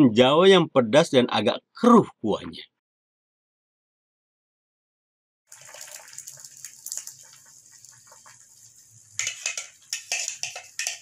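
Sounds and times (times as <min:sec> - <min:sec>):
pot of broth bubbling: 0:05.5 - 0:11.0.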